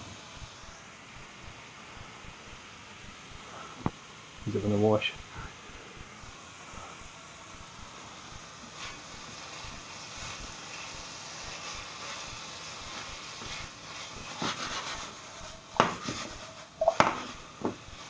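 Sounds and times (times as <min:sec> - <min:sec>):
vegetables sizzling in a pan: 0:00.0 - 0:18.0
spatula stirring: 0:08.6 - 0:18.0.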